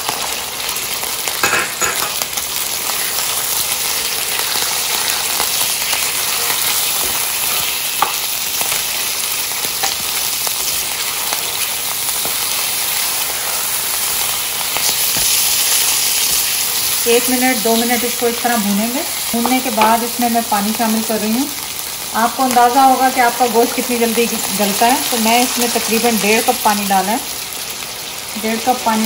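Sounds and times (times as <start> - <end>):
meat sizzling in hot oil: 0.0 - 29.0
spoon scraping a pan: 4.2 - 8.8.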